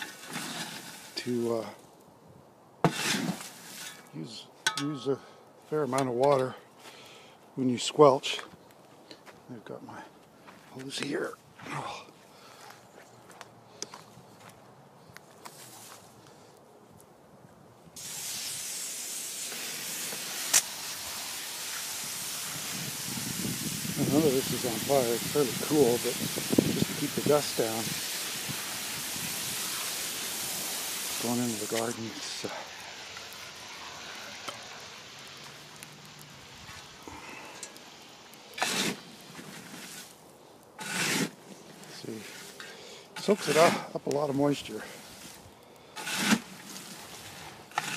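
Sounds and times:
garden hose spraying water: 0.0 - 1.7, 2.8 - 4.2, 18.0 - 47.9.

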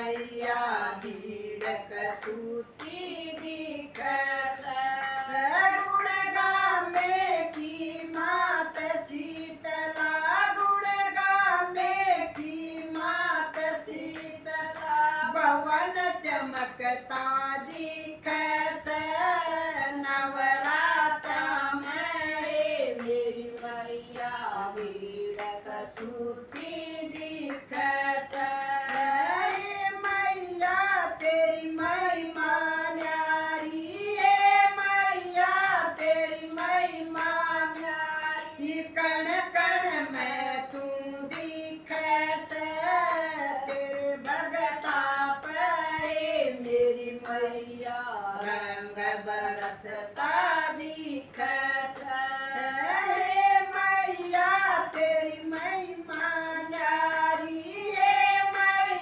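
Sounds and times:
hand-clapping: 0.0 - 59.0
women singing devotional song: 0.0 - 59.0.

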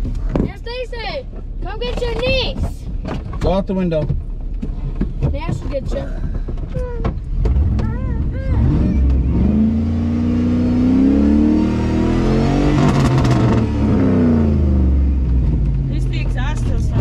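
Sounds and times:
truck engine revving: 7.3 - 17.0.

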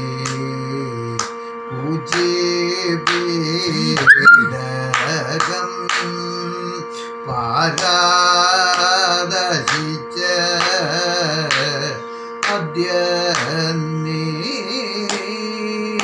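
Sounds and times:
man singing: 0.0 - 16.0
sharp taps keeping time: 3.9 - 6.1.

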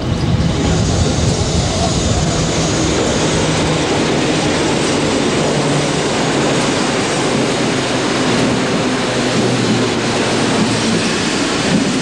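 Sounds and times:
train rumbling past: 0.0 - 12.0.

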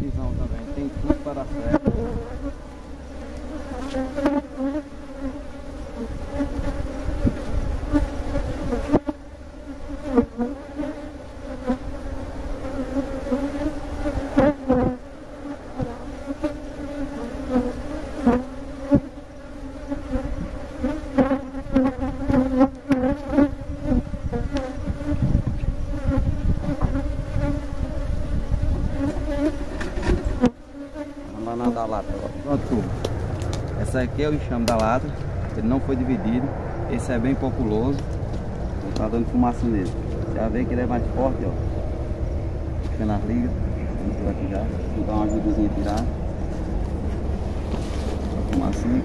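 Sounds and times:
honeybees buzzing: 0.0 - 49.0
wooden hive frames knocking: 28.8 - 30.6.

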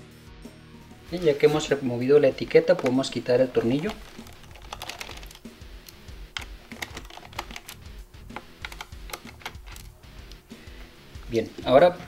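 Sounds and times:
screwdriver clicking on screw: 3.7 - 9.9.

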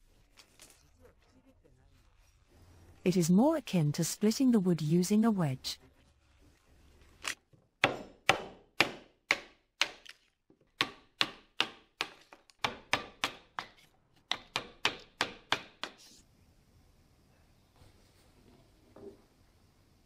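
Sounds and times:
hammer striking chisel: 7.8 - 10.1, 10.8 - 16.0.

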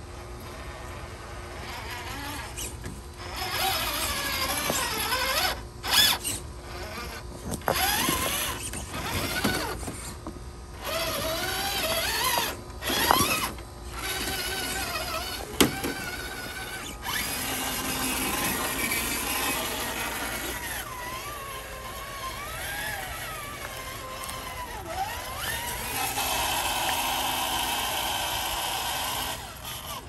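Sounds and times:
toy car electric motor whining: 0.4 - 30.0.

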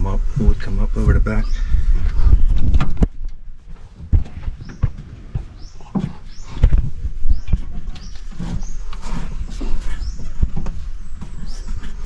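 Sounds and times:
hands scraping hoses: 5.4 - 12.0.

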